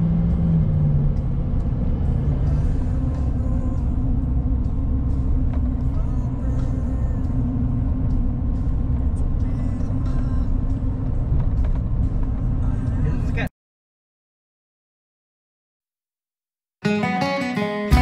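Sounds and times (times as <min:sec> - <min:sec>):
truck engine and road noise: 0:00.0 - 0:13.5.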